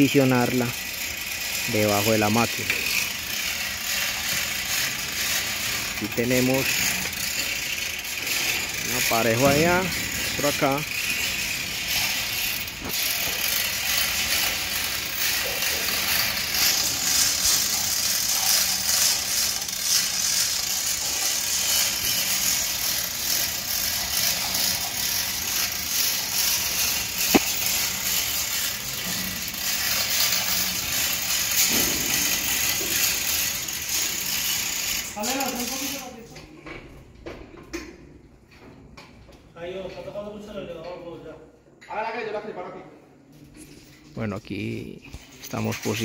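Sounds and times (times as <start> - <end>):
ratchet pawl clicking: 0.0 - 36.2
chain rattling through hoist: 0.0 - 36.3.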